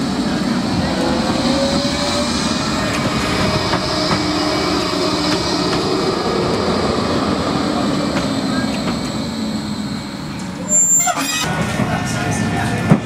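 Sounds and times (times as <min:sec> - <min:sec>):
tram wheels on rail: 0:00.0 - 0:13.0.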